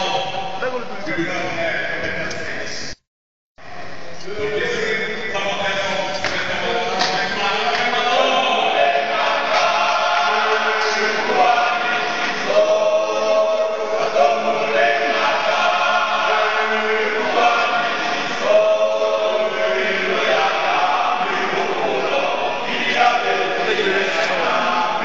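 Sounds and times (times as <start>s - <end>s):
men's choir singing: 5.4s - 25.0s.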